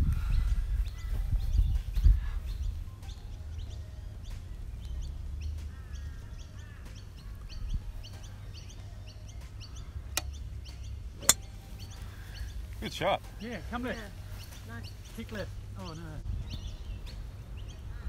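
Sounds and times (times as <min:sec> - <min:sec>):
wind rumble on microphone: 0:00.0 - 0:03.8, 0:07.2 - 0:08.2, 0:15.6 - 0:18.0
birds chirping and calling: 0:00.0 - 0:18.0
golf club striking ball: 0:11.2 - 0:11.5.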